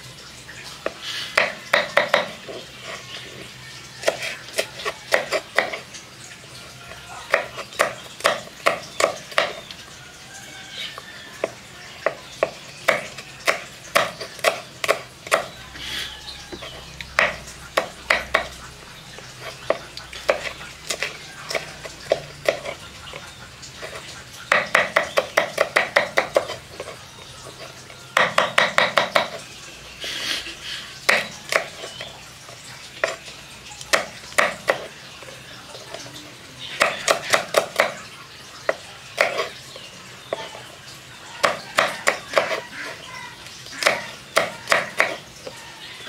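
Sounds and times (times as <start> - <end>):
knife chopping on wooden board: 0.8 - 2.6, 4.0 - 5.9, 7.3 - 9.6, 11.4 - 15.5, 16.5 - 18.6, 19.4 - 22.8, 24.5 - 27.0, 28.2 - 29.4, 31.1 - 31.9, 33.9 - 34.9, 36.8 - 38.0, 38.7 - 39.6, 41.4 - 42.7, 43.8 - 45.6.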